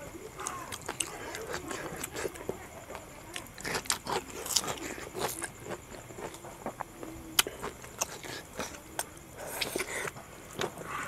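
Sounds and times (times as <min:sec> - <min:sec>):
wet chewing and lip smacks: 0:00.4 - 0:02.5.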